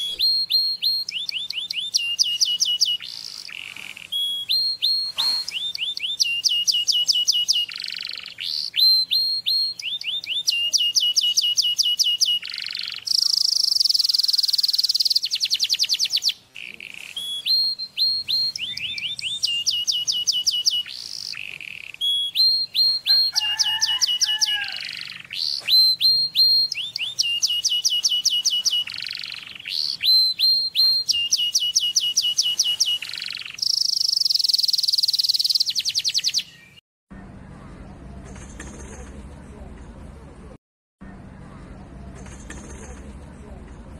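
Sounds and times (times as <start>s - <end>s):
canary singing: 0.0s - 38.8s.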